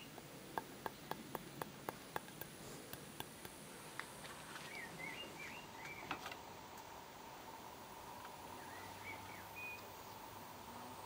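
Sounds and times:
bird chirping: 0.0s - 3.0s, 4.5s - 6.3s, 8.5s - 10.3s.

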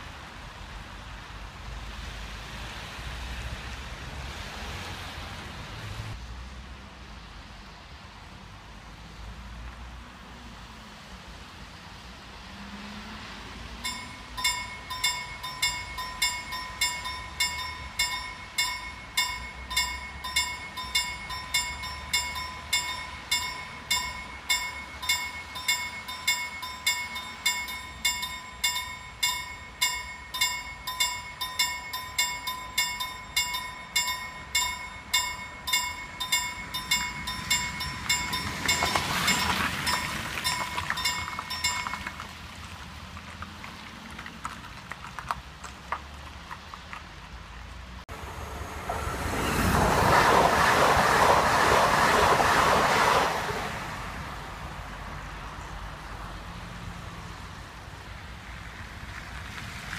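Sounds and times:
level-crossing warning bell: 13.8s - 42.4s.

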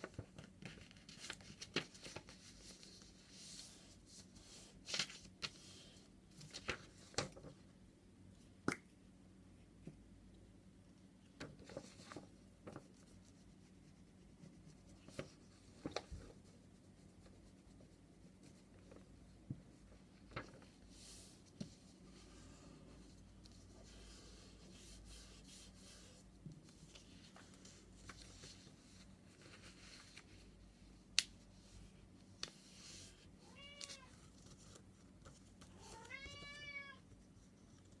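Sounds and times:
paper envelope rustling: 0.0s - 3.8s, 4.6s - 5.7s, 6.3s - 7.5s
cat meowing: 33.4s - 34.1s, 35.8s - 37.0s.

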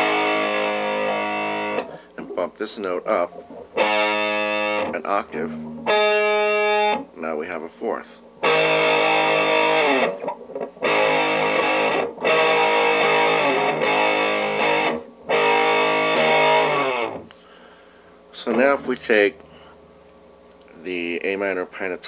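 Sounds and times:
distorted electric guitar power chord: 0.0s - 2.0s, 3.4s - 7.1s, 8.4s - 17.3s.

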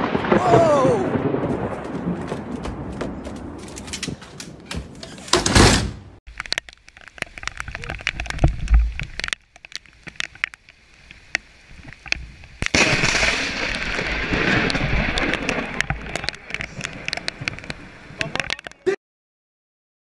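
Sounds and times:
lightning crack: 0.0s - 3.6s, 12.6s - 18.6s
crackling thunder: 0.0s - 4.2s, 12.6s - 18.6s.

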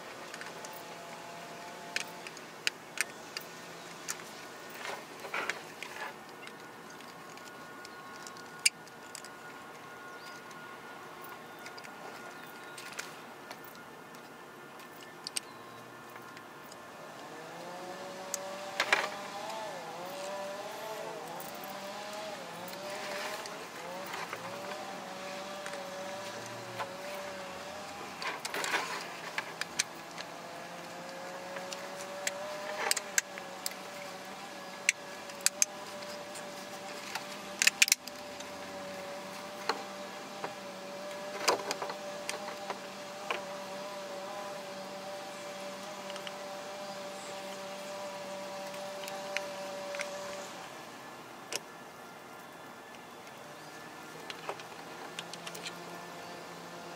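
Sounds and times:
hard plastic parts clicking: 1.8s - 10.6s, 13.6s - 15.5s, 22.6s - 43.5s
humming tone: 3.2s - 56.9s.

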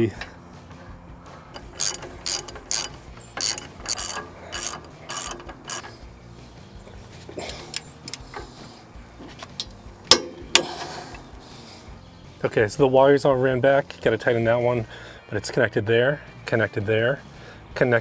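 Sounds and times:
ratchet wrench clicking: 1.5s - 6.2s, 7.4s - 8.6s, 9.4s - 11.3s.

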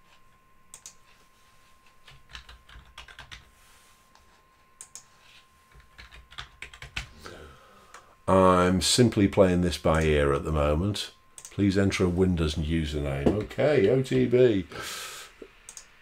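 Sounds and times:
faint typing on computer keyboard: 0.7s - 1.2s, 1.8s - 3.5s, 4.8s - 7.2s, 11.4s - 11.7s, 15.6s - 16.0s.

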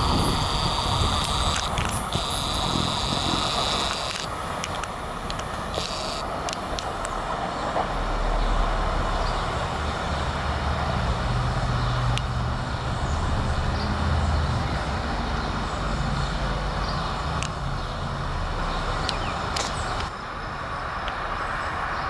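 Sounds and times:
electric train hum and rumble: 0.0s - 22.0s
faint clicks: 0.4s - 7.2s.

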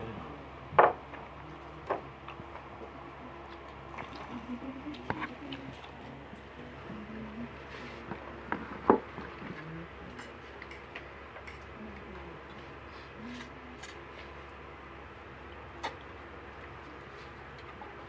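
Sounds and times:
chewing sounds: 1.1s - 6.8s.

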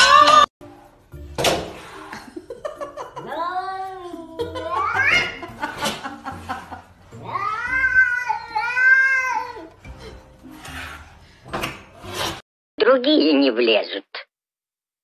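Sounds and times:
cat yowling: 4.6s - 5.4s, 7.2s - 9.8s.

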